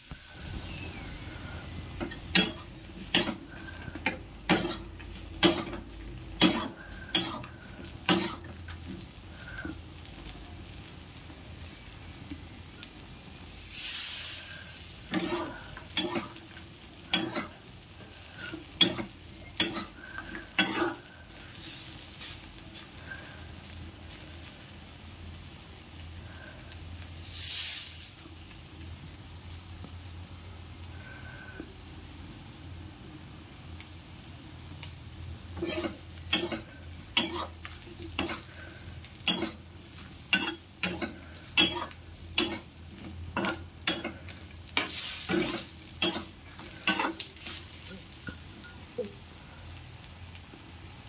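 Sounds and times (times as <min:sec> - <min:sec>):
food sizzling: 0:00.0 - 0:51.0
metal spatula scraping a pan: 0:01.9 - 0:09.7, 0:13.7 - 0:22.5, 0:35.6 - 0:48.4.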